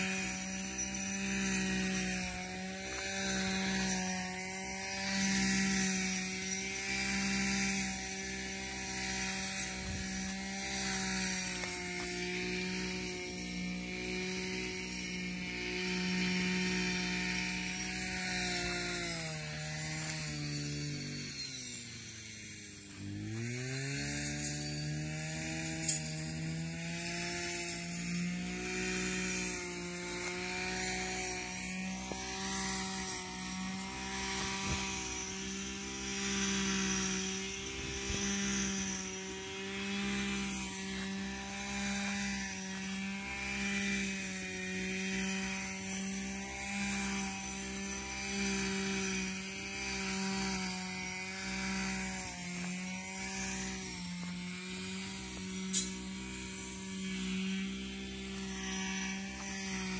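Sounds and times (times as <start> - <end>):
small engine running: 0.0 - 59.9.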